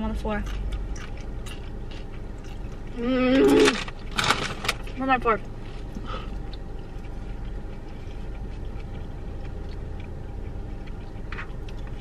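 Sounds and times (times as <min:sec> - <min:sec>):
low car cabin rumble: 0:00.0 - 0:12.0
chewing: 0:00.4 - 0:03.8, 0:05.6 - 0:12.0.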